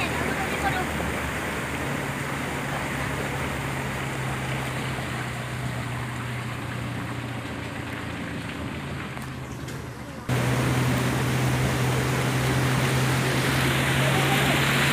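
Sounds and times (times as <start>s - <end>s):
floodwater rushing: 0.0s - 14.9s.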